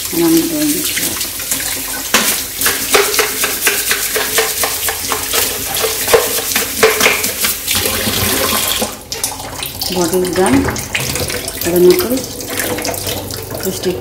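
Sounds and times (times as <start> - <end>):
bottle sloshing and splashing: 0.0 - 14.0
tap water splashing into sink: 0.0 - 14.0.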